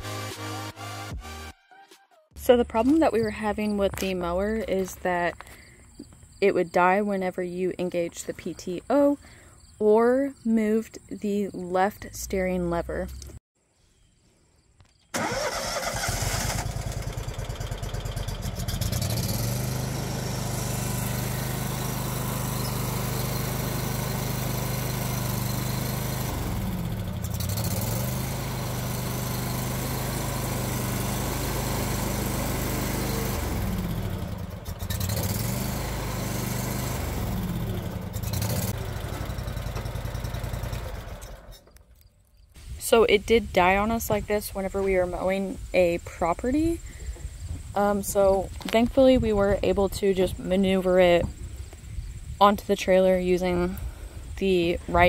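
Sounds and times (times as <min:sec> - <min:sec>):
mower engine running: 0:15.2 - 0:41.9.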